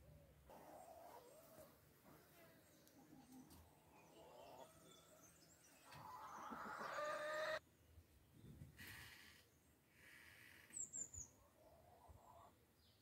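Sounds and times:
hens clucking: 0:05.8 - 0:07.6.

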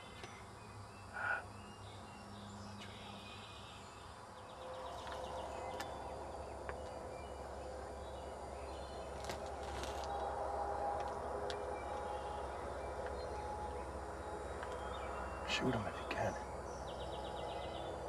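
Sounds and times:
songbirds chirping: 0:00.0 - 0:18.0
footsteps on leaf litter: 0:09.2 - 0:10.2.

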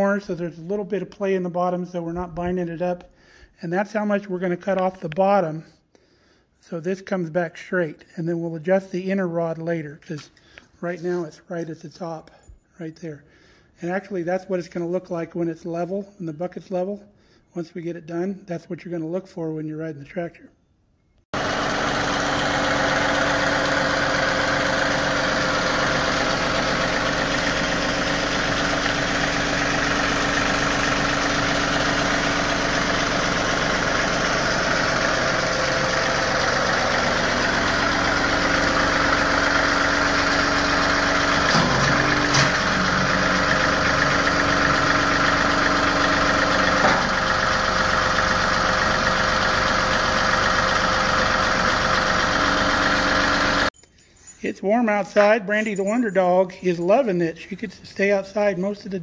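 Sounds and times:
diesel tractor engine idling: 0:21.4 - 0:53.7.

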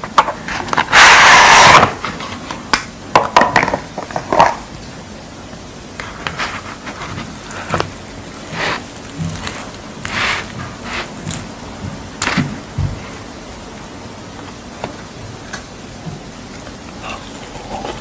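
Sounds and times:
wrapper and tray crinkling: 0:06.0 - 0:13.8
handling food by hand: 0:06.0 - 0:15.2
packaging tearing: 0:06.7 - 0:11.6.

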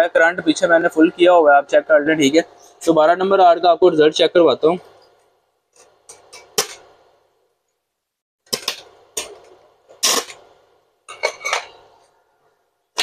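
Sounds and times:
welding arc crackling: 0:08.5 - 0:10.6.

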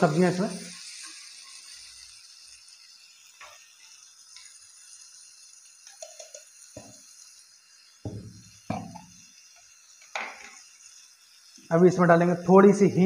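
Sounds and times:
vegetables sizzling faintly: 0:00.0 - 0:13.0
container lid knocking: 0:08.1 - 0:09.0.

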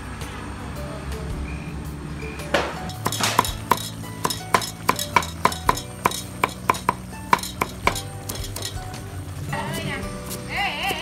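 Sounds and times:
metal ladle clinking on pot: 0:02.8 - 0:09.0.

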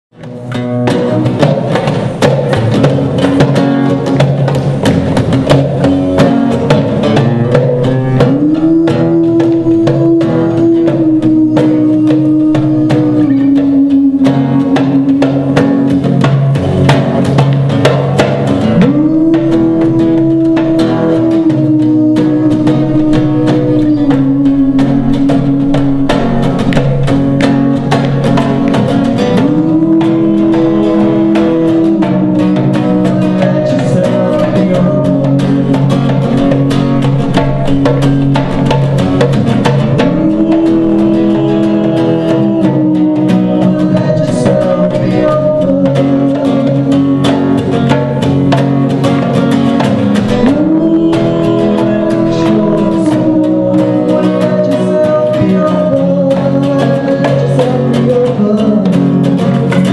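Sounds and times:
hand percussion: 0:00.1 - 0:59.9
strummed acoustic guitar: 0:00.1 - 0:59.9
woman singing: 0:08.2 - 0:15.7, 0:18.8 - 0:27.1, 0:40.0 - 0:47.3, 0:50.4 - 0:59.0.

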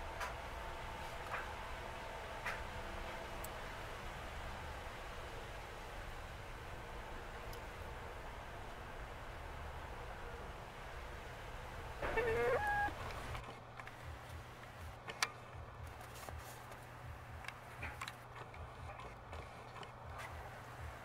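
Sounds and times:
hen call: 0:12.0 - 0:13.0.

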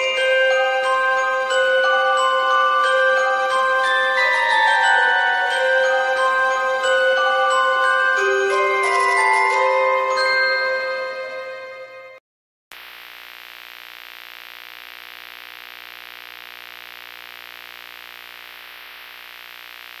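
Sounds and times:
glockenspiel-like music: 0:00.0 - 0:12.2
tv static hiss: 0:12.7 - 0:20.0.

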